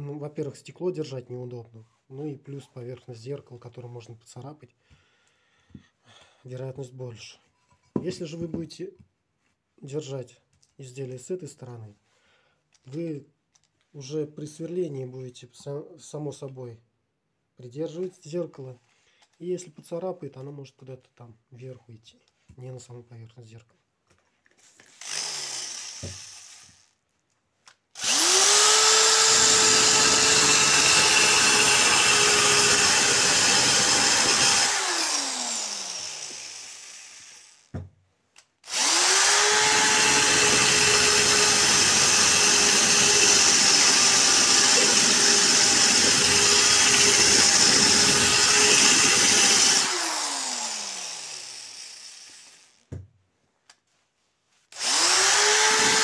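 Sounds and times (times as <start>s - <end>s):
drill whining: 24.9s - 27.0s, 27.9s - 37.7s, 38.6s - 52.9s, 54.7s - 56.0s.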